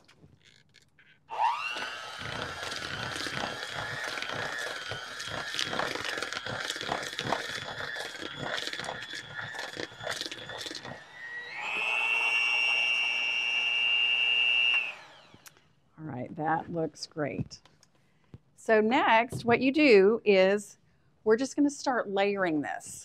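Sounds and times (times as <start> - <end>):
hand mixer motor whine: 0.0 - 15.6
beaters knocking and scraping bowl: 1.8 - 11.0.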